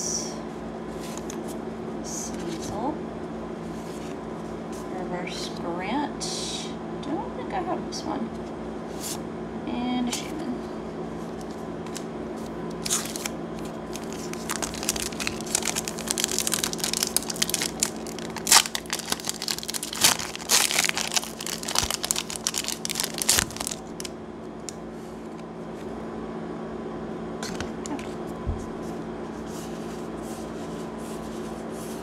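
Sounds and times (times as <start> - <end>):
foil wrapper tearing and crinkling: 12.8 - 24.1.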